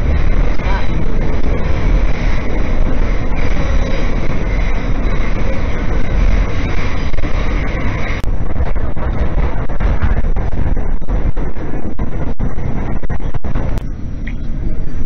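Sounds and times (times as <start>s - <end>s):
subway train rumble and rattle: 0.0s - 15.0s.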